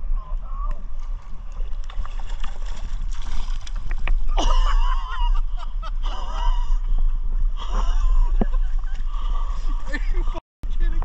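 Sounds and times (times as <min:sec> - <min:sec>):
low water and wind rumble: 0:00.0 - 0:11.0
fish splashing in water: 0:01.2 - 0:04.3.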